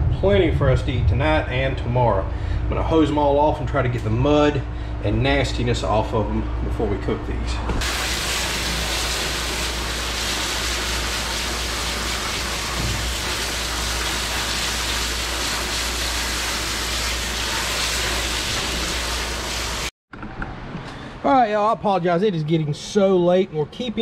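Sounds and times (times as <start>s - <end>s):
hose spraying water into sink: 7.8s - 19.9s.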